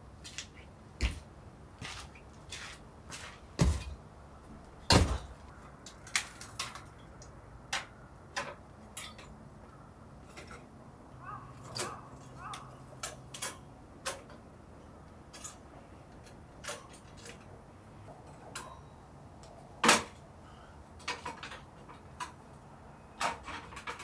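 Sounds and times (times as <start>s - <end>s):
heavy thuds: 3.1s - 4.0s.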